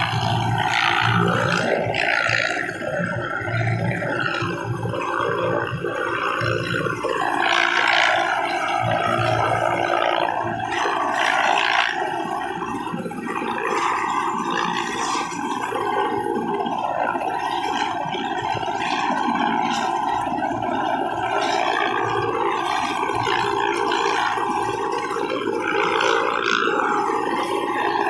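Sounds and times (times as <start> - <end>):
helicopter turbine and rotor noise: 0.0 - 28.0.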